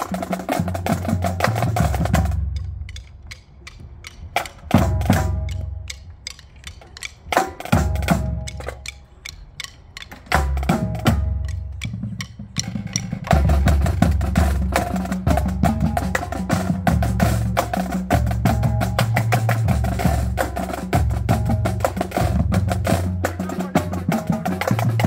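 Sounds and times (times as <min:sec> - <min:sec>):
bass drum notes: 0:09.6 - 0:25.0.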